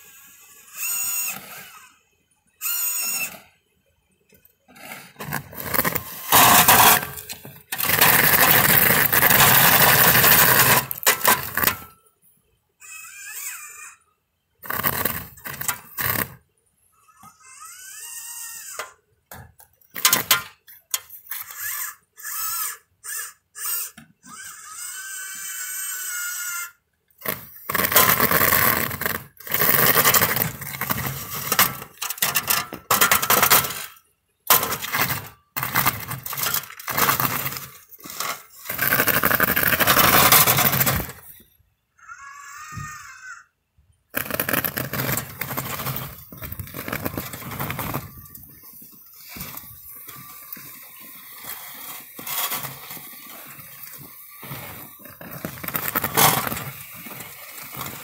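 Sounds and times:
robot motors whining: 0:00.0 - 0:02.0, 0:02.6 - 0:03.6, 0:21.3 - 0:31.8
plow blade scraping snow: 0:04.7 - 0:11.9, 0:14.6 - 0:16.4, 0:27.2 - 0:41.4, 0:44.2 - 0:58.0.

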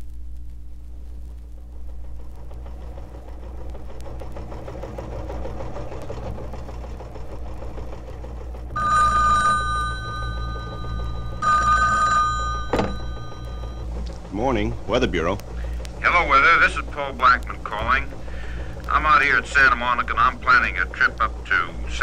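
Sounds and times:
low hum: 0:00.0 - 0:22.0
telephone bell ringing: 0:08.8 - 0:13.9.

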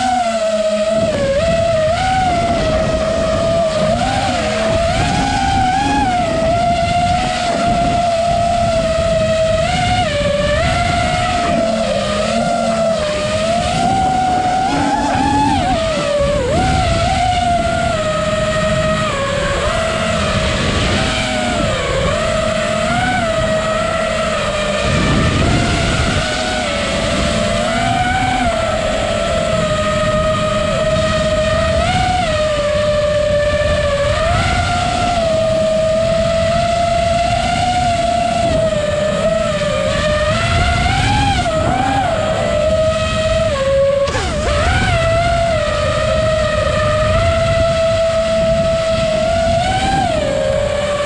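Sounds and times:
drone motors whining: 0:00.0 - 0:51.0.

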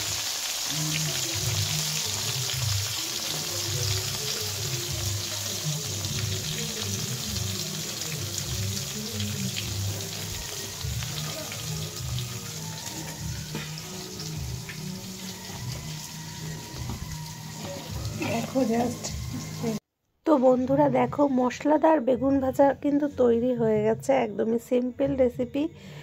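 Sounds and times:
food sizzling in hot oil: 0:00.0 - 0:19.8
background music: 0:00.0 - 0:26.0.

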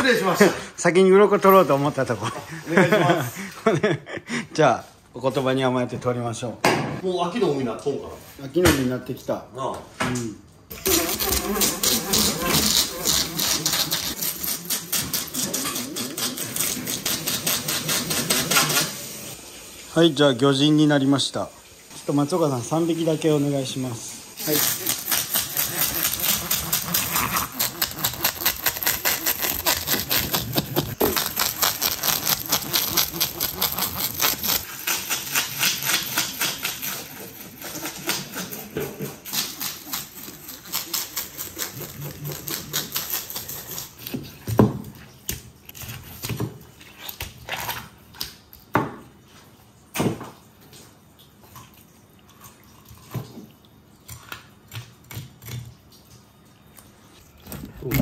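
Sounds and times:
fish scaler scraping scales: 0:10.7 - 0:19.3, 0:24.4 - 0:44.2.

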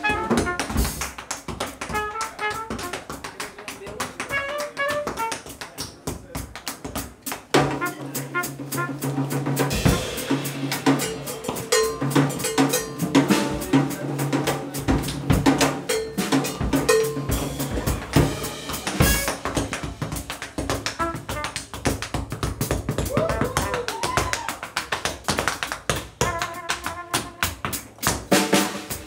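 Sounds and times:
tap shoes on wooden stage: 0:00.0 - 0:08.4, 0:16.6 - 0:29.0
swing band music: 0:00.0 - 0:29.0.

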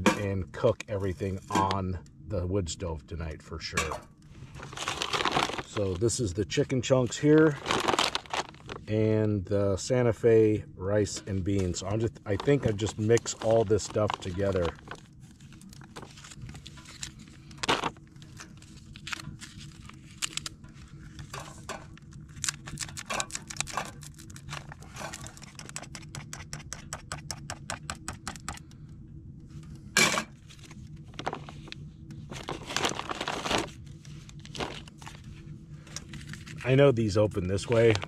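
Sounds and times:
foil pouches crinkling: 0:04.4 - 0:09.0, 0:11.6 - 0:26.2, 0:30.4 - 0:38.0.

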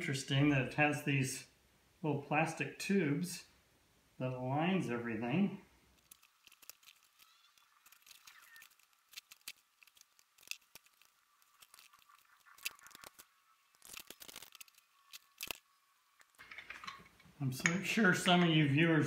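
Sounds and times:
metal engine parts handled: 0:16.2 - 0:18.6.

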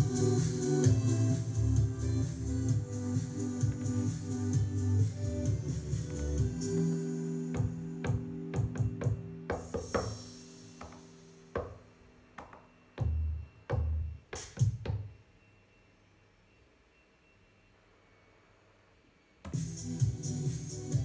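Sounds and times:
drum and bass hits: 0:07.5 - 0:11.9.

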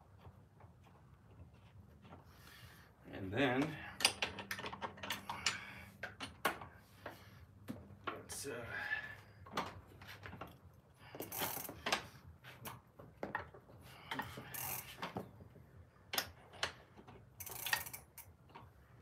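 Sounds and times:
wrench ratcheting rasps: 0:11.2 - 0:11.9, 0:14.2 - 0:15.0, 0:17.4 - 0:18.3.

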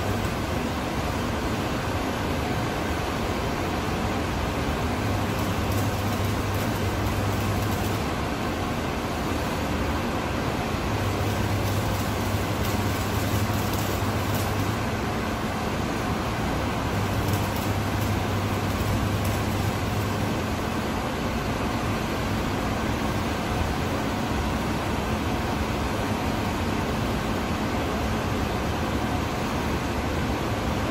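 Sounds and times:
arc welding crackling: 0:00.0 - 0:01.5, 0:02.6 - 0:26.7.

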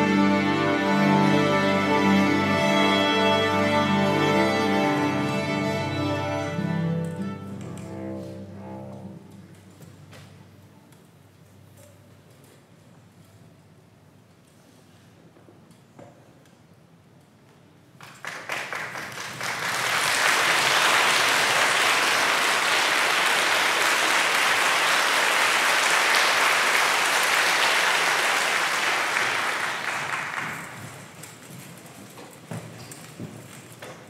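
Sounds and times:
audience applause: 0:18.0 - 0:31.4.

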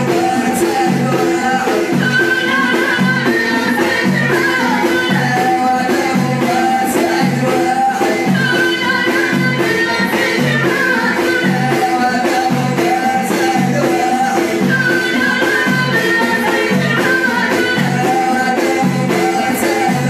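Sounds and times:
frame drums beating: 0:00.0 - 0:20.0
person singing: 0:00.0 - 0:20.0.

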